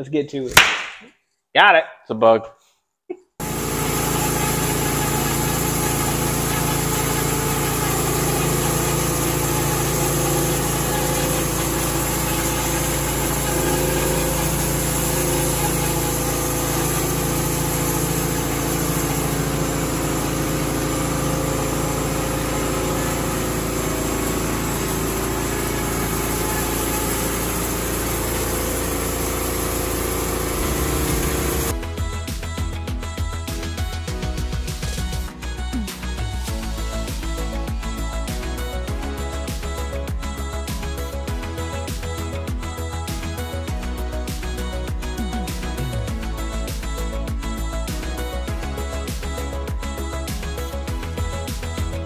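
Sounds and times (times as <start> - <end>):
band sawmill cutting log: 3.4 - 31.8.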